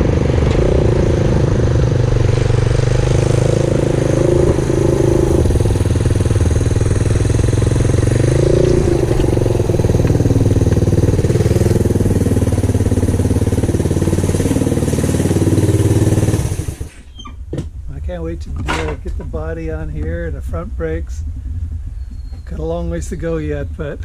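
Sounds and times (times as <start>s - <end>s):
small motorcycle engine running: 0.0s - 17.0s.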